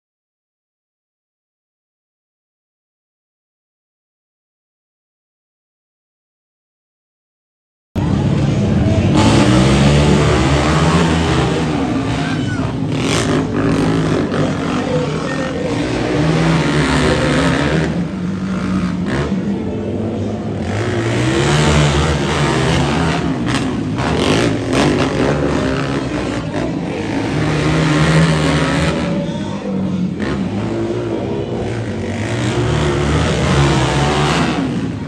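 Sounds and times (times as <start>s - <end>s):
quad bike engines revving: 8.0s - 35.0s.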